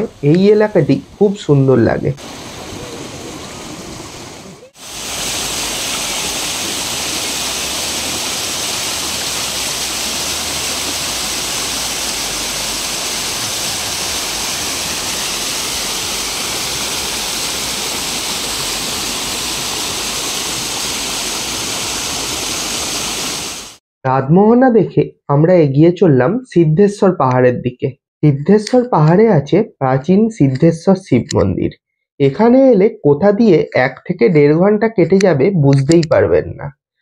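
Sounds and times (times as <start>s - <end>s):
waterfall rushing: 2.2s - 23.8s.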